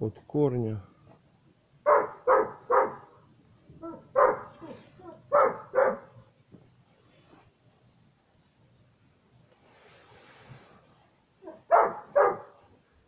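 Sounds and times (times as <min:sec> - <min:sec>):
dog barking: 0:01.8 - 0:03.2, 0:03.8 - 0:06.2, 0:11.4 - 0:12.7.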